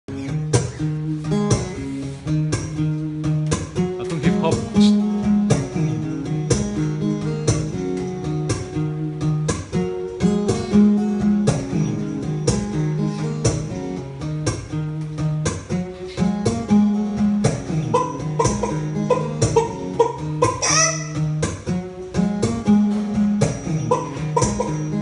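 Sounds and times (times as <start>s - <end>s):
acoustic guitar strumming: 0.1s - 25.0s.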